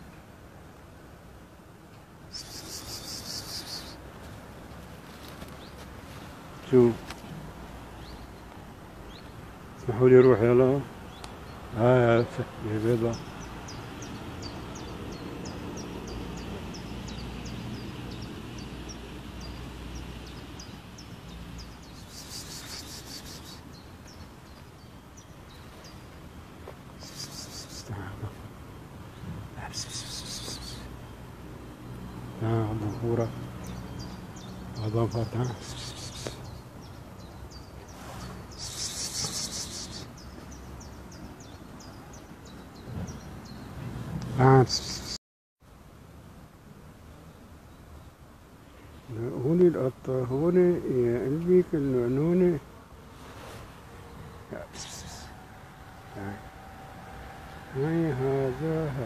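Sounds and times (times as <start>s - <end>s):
small bird chirping: 2.3s - 4.0s, 13.0s - 43.8s, 44.6s - 45.2s.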